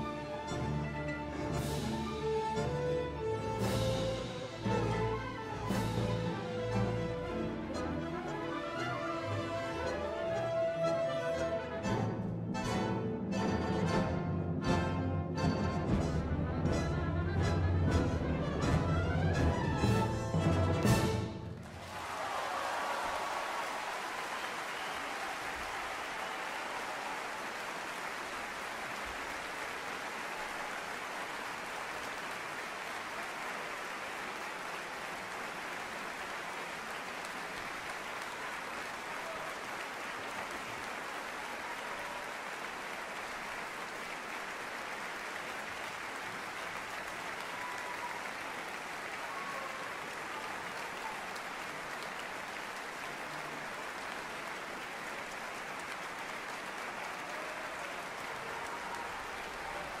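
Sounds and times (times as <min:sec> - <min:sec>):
audience applauding: 0:18.4 - 1:00.0.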